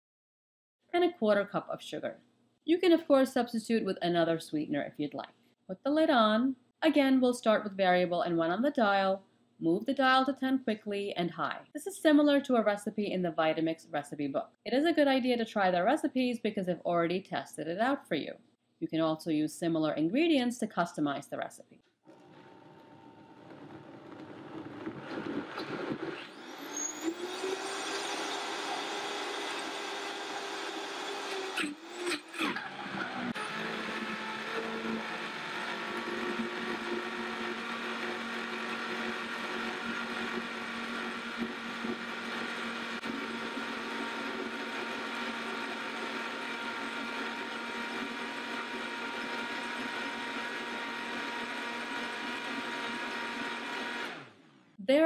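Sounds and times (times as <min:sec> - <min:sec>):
blender motor running: 0:22.1 - 0:54.5.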